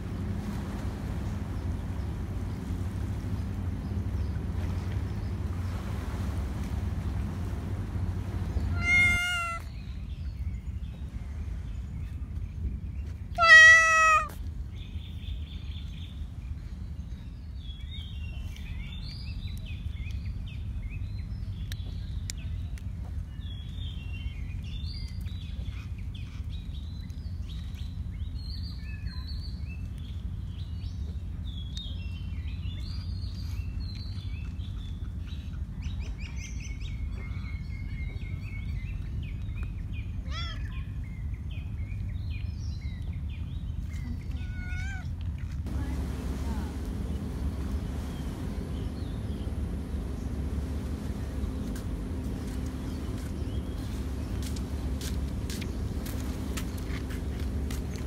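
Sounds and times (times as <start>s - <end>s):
low outdoor rumble: 0.0s - 58.0s
small birds chirping: 0.0s - 58.0s
cat meowing: 8.7s - 9.7s, 13.4s - 14.4s, 44.4s - 45.1s.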